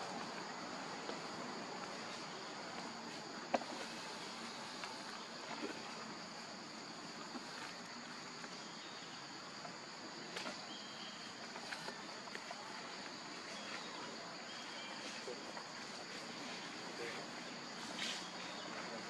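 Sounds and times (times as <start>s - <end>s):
high-pitched insect chorus: 0.0s - 19.0s.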